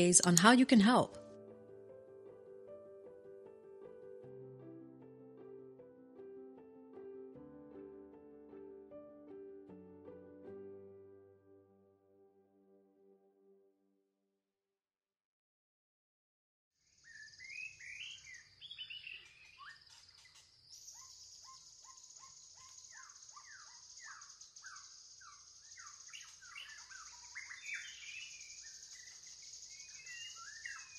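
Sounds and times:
birds chirping: 17.0s - 30.9s.

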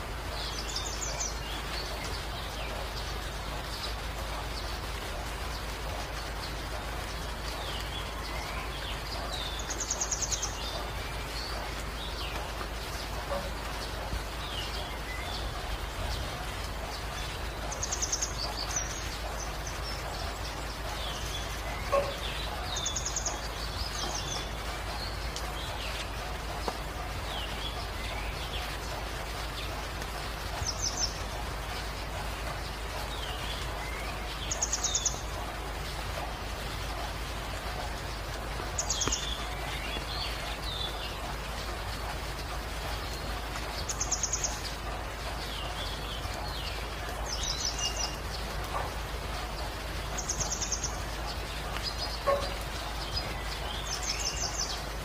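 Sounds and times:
birds chirping: 0.0s - 55.0s
rain hissing: 0.0s - 55.0s.

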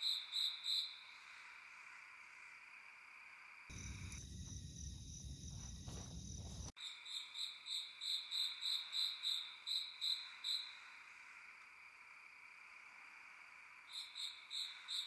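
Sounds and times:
crickets trilling: 0.0s - 15.0s
low rumbling noise: 3.7s - 6.7s.

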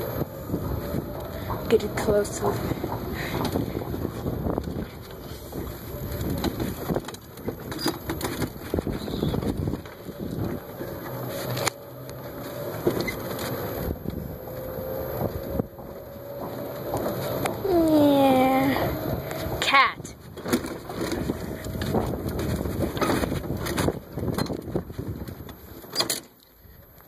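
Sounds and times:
faint rising whine: 0.0s - 7.5s, 8.5s - 20.3s
wind on microphone: 0.0s - 11.7s, 12.6s - 25.8s.

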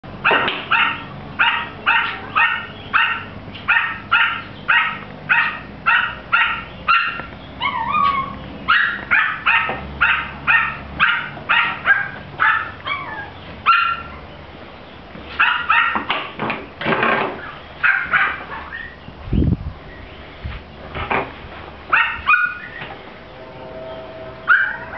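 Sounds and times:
small dog yapping: 0.3s - 14.2s, 15.4s - 16.1s, 17.8s - 19.0s, 21.9s - 22.9s, 24.5s - 24.9s
dog whiny yelp: 0.3s - 14.3s, 21.9s - 22.9s, 24.4s - 24.9s.

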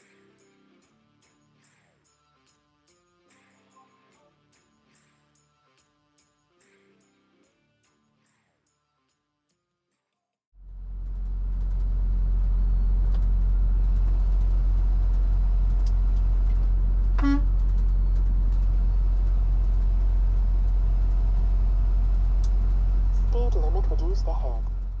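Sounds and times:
truck engine drone and road noise: 10.6s - 25.0s
truck horn toot: 17.1s - 17.8s.

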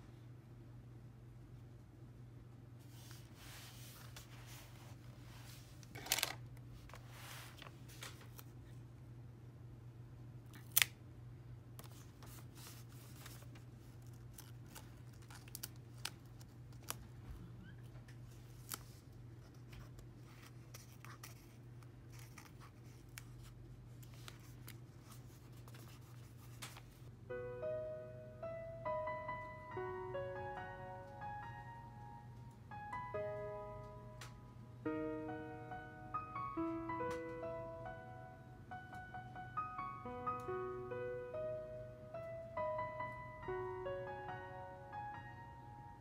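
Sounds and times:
paper rustling: 2.9s - 8.6s, 11.8s - 17.4s, 18.1s - 27.1s.

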